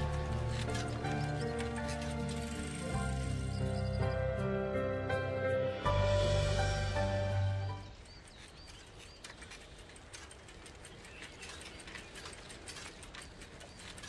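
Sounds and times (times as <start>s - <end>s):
bicycle crunching along path: 0.0s - 4.0s, 7.8s - 14.0s
background music: 0.0s - 8.0s
birds chirping: 0.0s - 14.0s.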